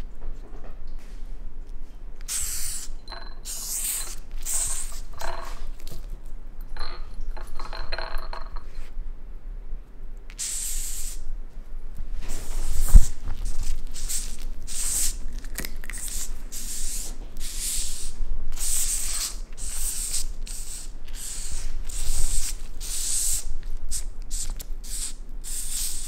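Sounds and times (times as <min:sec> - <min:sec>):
cockroach hissing: 0:02.3 - 0:05.2, 0:10.3 - 0:11.2, 0:12.9 - 0:15.2, 0:15.9 - 0:26.0
scraping and clinks against bowl: 0:03.0 - 0:06.0, 0:06.6 - 0:08.9.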